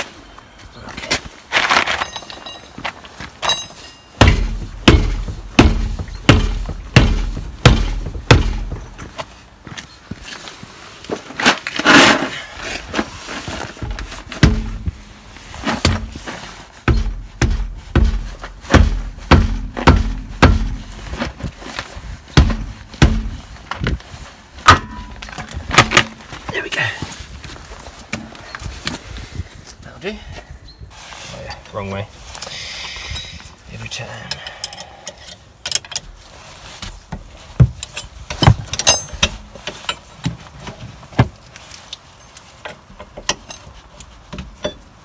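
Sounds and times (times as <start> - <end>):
hammer thuds on car wheel: 4.2 - 8.9, 16.9 - 20.8.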